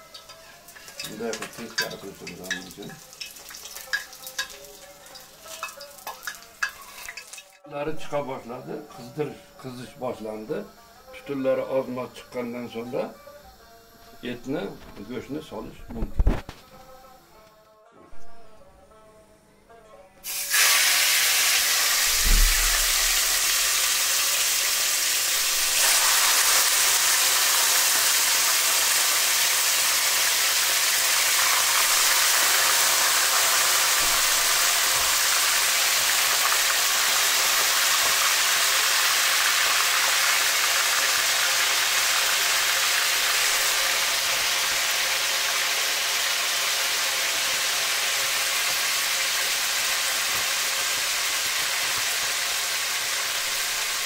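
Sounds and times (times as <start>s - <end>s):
meat sizzling in hot oil: 0.0s - 7.6s, 20.2s - 54.0s
low thump: 22.0s - 23.3s.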